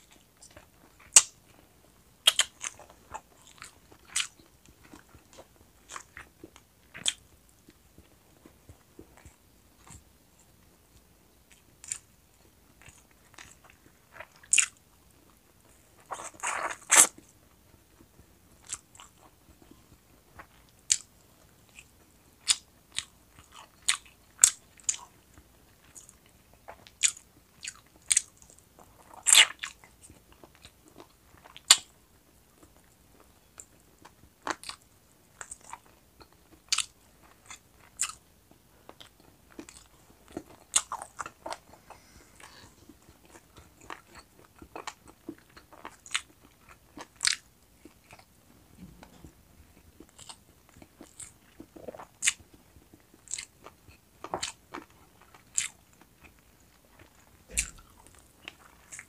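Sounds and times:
person chewing chicken wings: 2.2 - 7.8, 12.8 - 15.3, 18.6 - 19.7, 20.4 - 21.1, 21.7 - 31.9, 32.6 - 59.0
crunchy bites: 57.0 - 59.0.

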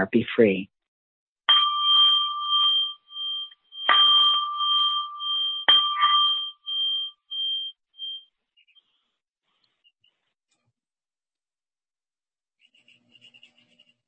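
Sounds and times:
meditation bell ringing: 1.5 - 8.2.

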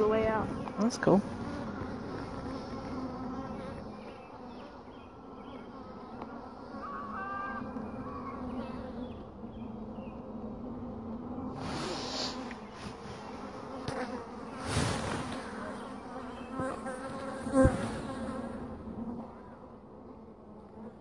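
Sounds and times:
bees buzzing: 0.0 - 21.0.

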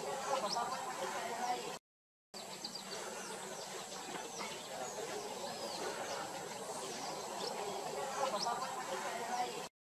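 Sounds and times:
outdoor background hiss: 2.4 - 9.7.

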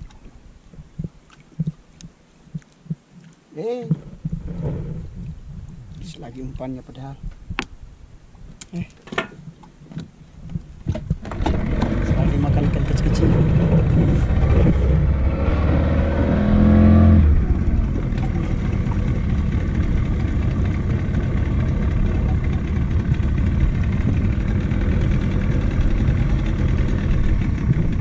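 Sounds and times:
outboard motor revving: 11.2 - 28.0.

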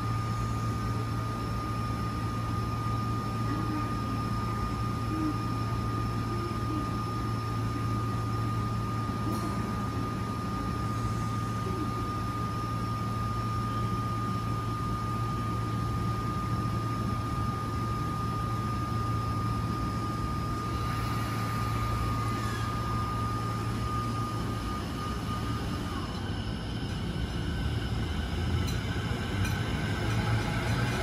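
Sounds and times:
electric train hum and whine: 0.0 - 31.0
train motor pitch rising: 20.5 - 31.0.

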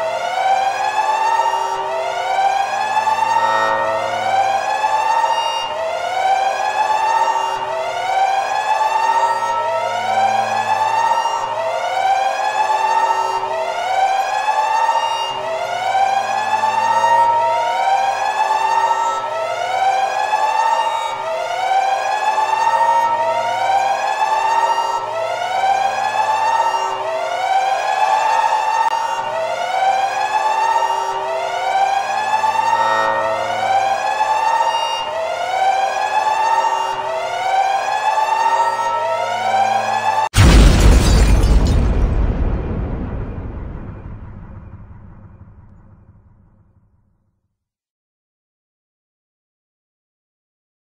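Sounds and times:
siren whoop alarm: 0.0 - 46.0
low hum: 40.4 - 46.8.

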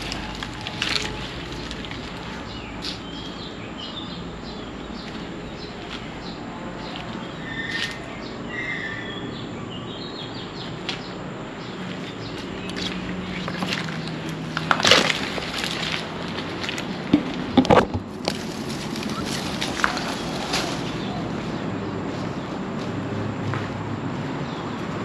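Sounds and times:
footsteps on concrete floor: 0.0 - 3.3, 5.0 - 8.1, 19.0 - 25.0
birds chirping: 0.0 - 25.0.

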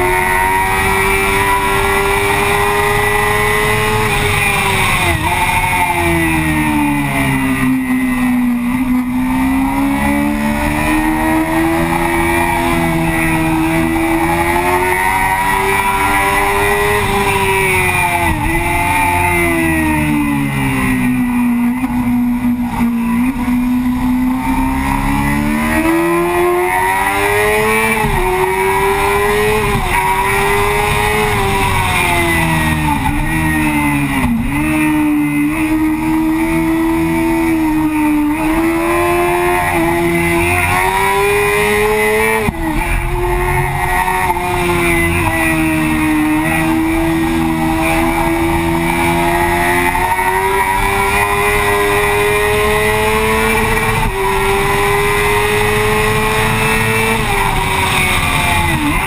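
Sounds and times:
motorcycle engine revving high: 0.0 - 59.0.

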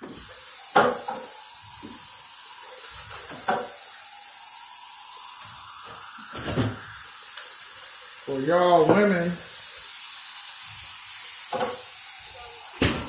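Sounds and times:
tap water running: 0.0 - 13.0.

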